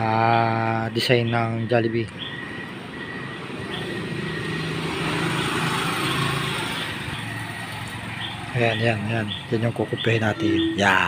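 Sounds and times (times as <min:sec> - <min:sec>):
vehicle passing by: 0:02.4 - 0:11.0.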